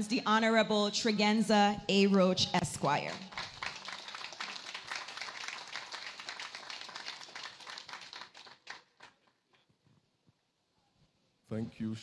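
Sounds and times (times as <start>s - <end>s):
audience applauding: 3.1s - 9.4s.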